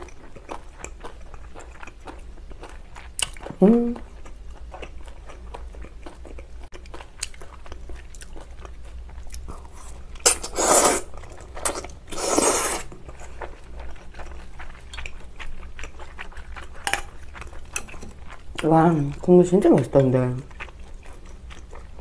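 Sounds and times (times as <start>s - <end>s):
person chewing: 0.0s - 22.0s
loud noodle slurps: 9.8s - 12.9s.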